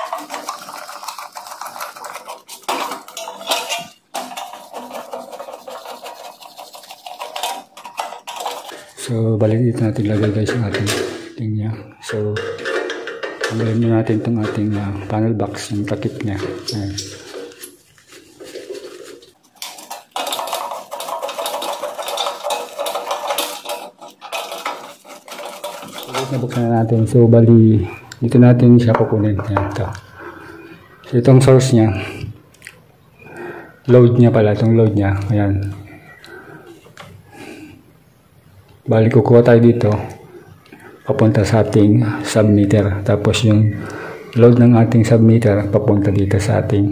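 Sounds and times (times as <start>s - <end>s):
sheet metal clinking and rattling: 0.0s - 9.1s, 12.0s - 27.0s.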